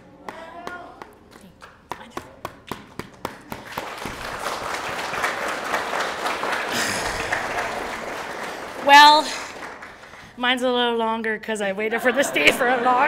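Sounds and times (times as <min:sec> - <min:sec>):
audience applauding: 0:03.2 - 0:10.3.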